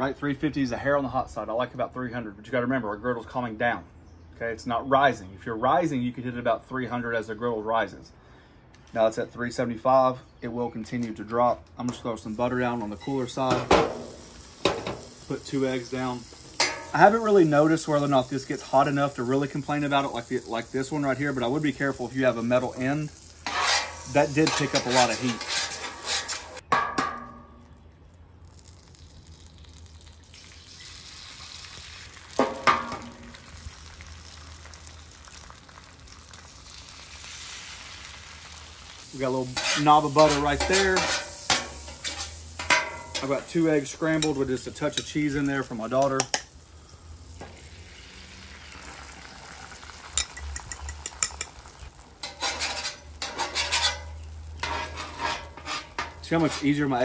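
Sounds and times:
eggs sizzling on griddle: 12.2s - 27.6s, 28.3s - 57.0s
metal spatula scraping griddle: 12.7s - 27.1s, 38.9s - 45.1s, 52.2s - 57.0s.

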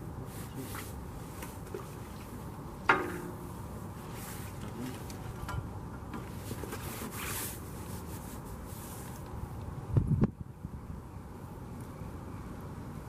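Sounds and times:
wind rumbling on microphone: 9.3s - 13.0s.

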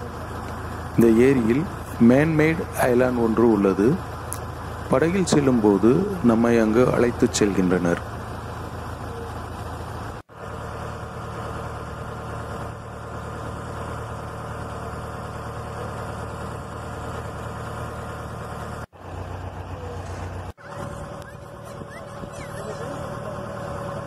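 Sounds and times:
motorboat engine running: 0.0s - 24.0s.

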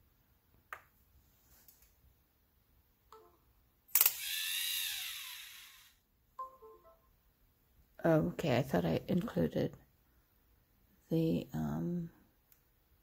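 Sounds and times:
motor whine: 4.1s - 6.0s.

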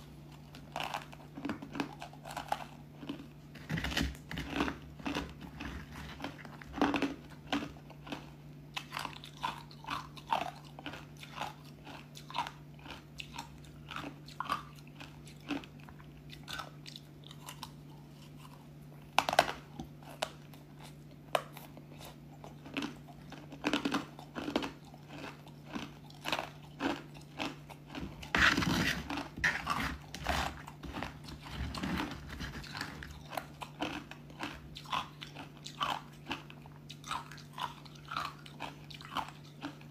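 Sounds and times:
faint low hum: 0.0s - 39.9s
crunching crispy ice: 0.4s - 8.2s, 22.6s - 36.4s.

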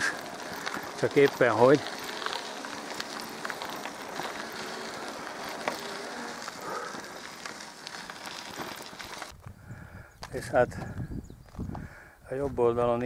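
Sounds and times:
bicycle tyres rolling on road: 0.0s - 13.0s
wind across microphone: 9.3s - 13.0s.

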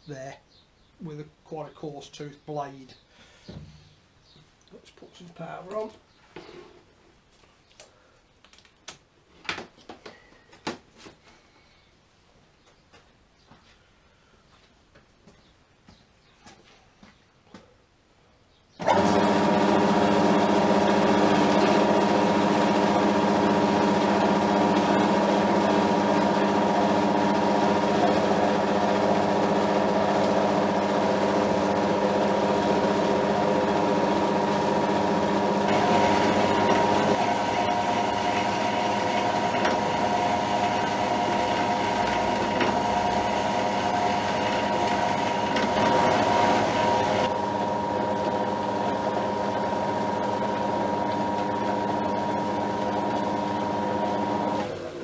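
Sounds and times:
bandsaw cutting metal: 18.8s - 54.8s.

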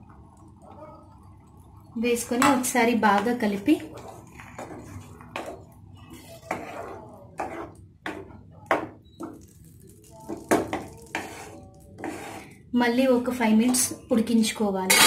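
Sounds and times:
spatula scraping and knocking pan: 3.8s - 9.5s, 10.3s - 12.5s.

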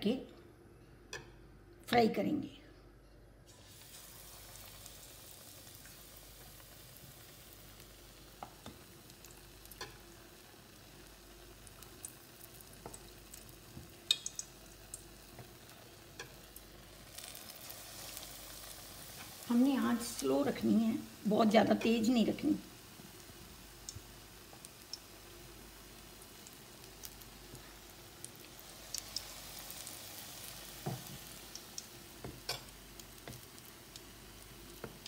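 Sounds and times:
hot oil sizzling: 3.5s - 35.0s
spoon clicking against bowl: 14.1s - 14.5s.

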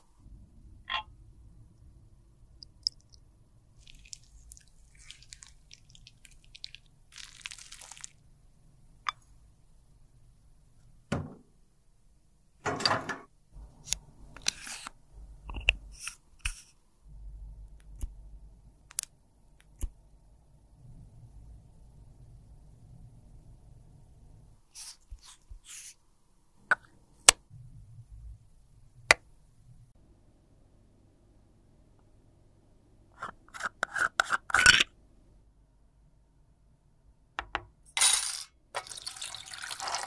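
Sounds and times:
small objects clicking and tapping: 2.6s - 3.2s
faint low hum: 16.8s - 24.7s, 26.1s - 33.2s.

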